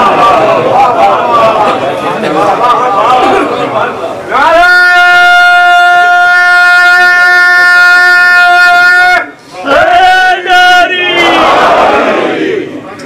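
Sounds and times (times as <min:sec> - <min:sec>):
man's long high call: 0:04.4 - 0:10.3.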